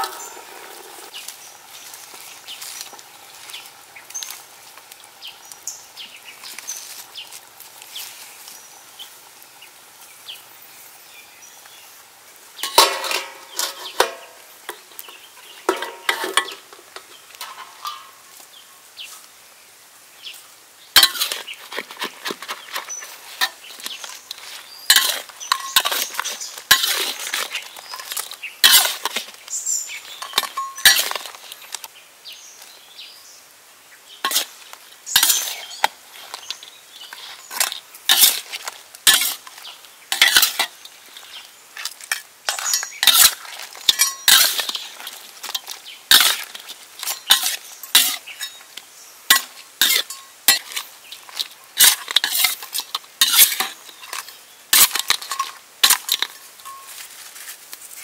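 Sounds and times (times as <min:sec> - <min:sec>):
metal spatula scraping wok: 0:00.0 - 0:01.2, 0:12.6 - 0:18.2, 0:21.0 - 0:29.3, 0:30.1 - 0:31.6, 0:34.2 - 0:41.3, 0:42.0 - 0:48.6, 0:49.3 - 0:56.9.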